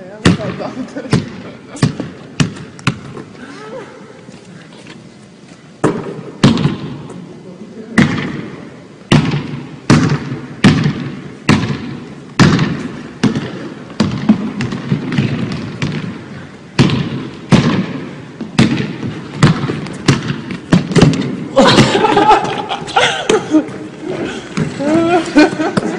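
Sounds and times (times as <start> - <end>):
basketball bouncing on wooden floor: 1.8 - 3.2, 9.1 - 16.2, 16.8 - 21.4.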